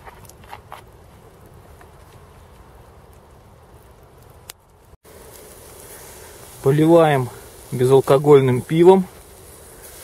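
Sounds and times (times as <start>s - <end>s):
outdoor hiss: 2.2s - 10.0s.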